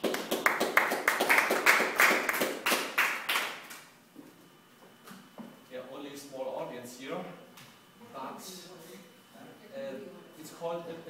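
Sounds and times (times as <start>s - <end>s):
small audience clapping: 0.0s - 3.9s.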